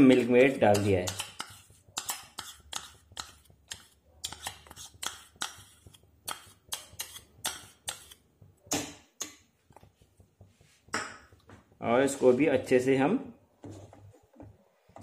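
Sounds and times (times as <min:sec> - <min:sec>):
metal spoon scraping ceramic bowl: 0:00.0 - 0:08.2.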